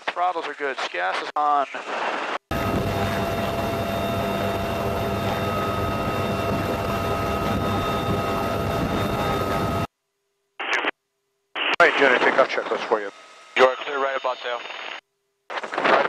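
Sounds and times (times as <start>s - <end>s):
helicopter engine and rotor noise: 2.5s - 9.9s
turbine whine: 2.5s - 9.9s.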